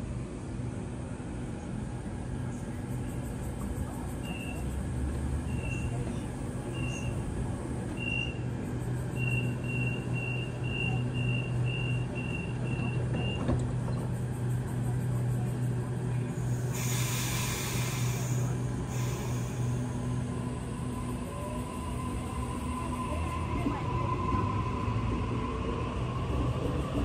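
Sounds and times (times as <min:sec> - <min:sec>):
standing train hum: 0:00.0 - 0:27.0
door warning beeps: 0:09.2 - 0:13.6
train doors thudding shut: 0:11.2 - 0:14.2
air hissing: 0:16.5 - 0:20.0.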